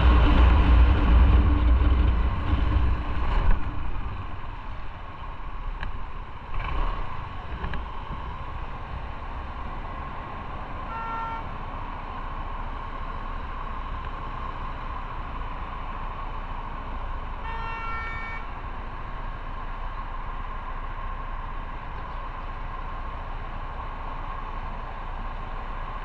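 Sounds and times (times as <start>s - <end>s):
wind and road noise: 0.0s - 26.0s
vehicle horn honking: 10.9s - 11.6s, 17.4s - 18.6s.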